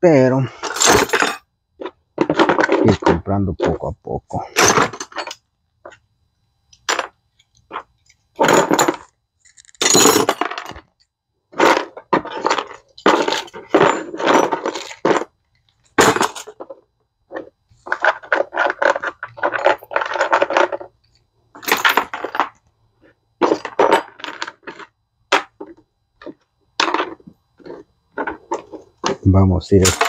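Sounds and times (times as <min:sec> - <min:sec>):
metal tools clinking: 0:00.6 - 0:01.4, 0:11.6 - 0:15.2, 0:29.8 - 0:30.0.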